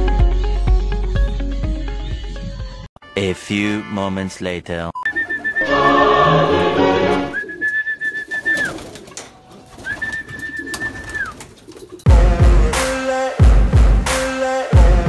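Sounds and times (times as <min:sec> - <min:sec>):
person whistling long notes: 0:05.1 - 0:08.8, 0:09.8 - 0:11.4
loud music: 0:05.6 - 0:07.4, 0:12.1 - 0:15.0.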